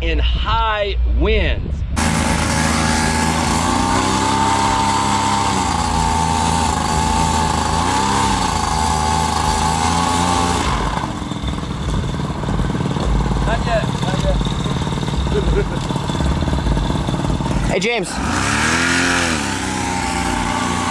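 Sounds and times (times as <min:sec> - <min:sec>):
paramotor engine running: 0:02.0 - 0:20.9.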